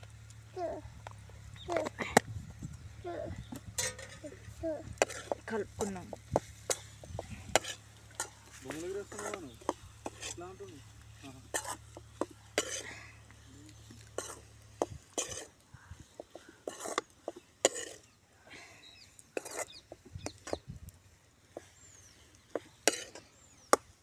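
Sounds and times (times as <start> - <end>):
metal spoon scraping a pan: 3.6 - 13.0, 13.9 - 18.2, 19.3 - 20.6, 22.7 - 23.4.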